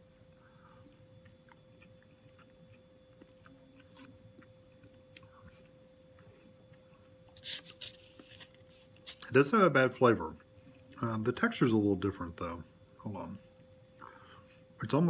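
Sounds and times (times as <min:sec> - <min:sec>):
faint steady hum: 0:00.0 - 0:15.0
person chewing food: 0:00.1 - 0:09.3.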